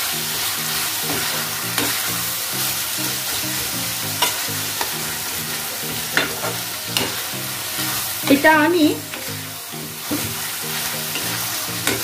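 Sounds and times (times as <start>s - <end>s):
masala sizzling in a wok: 0.0s - 12.0s
spatula knocking and scraping pan: 4.2s - 7.2s.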